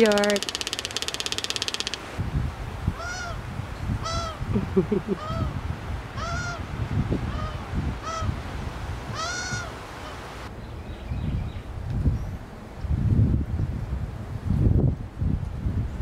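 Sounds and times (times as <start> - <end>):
wind rumble on microphone: 2.2 - 16.0
bird giving soft calls: 3.0 - 3.4, 9.1 - 10.4.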